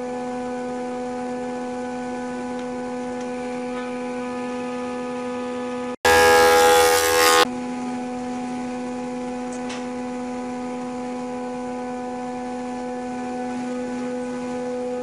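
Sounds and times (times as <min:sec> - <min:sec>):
planer cutting wood: 0:06.0 - 0:07.5
planer motor humming: 0:06.0 - 0:07.5.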